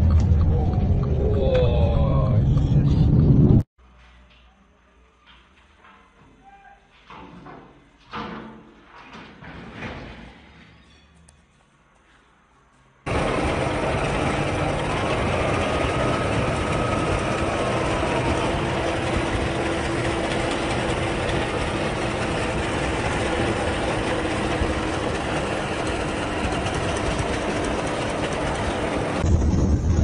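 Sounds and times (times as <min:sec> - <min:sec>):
truck driving: 0:00.0 - 0:03.6, 0:13.0 - 0:30.0
faint squeal: 0:06.3 - 0:07.0, 0:10.4 - 0:11.3.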